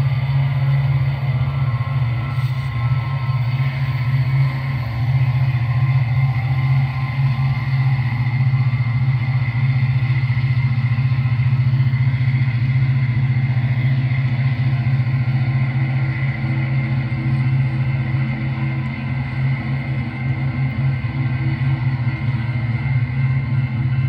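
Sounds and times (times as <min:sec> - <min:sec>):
model train high whine: 0:00.0 - 0:24.0
model train low hum: 0:00.0 - 0:24.0.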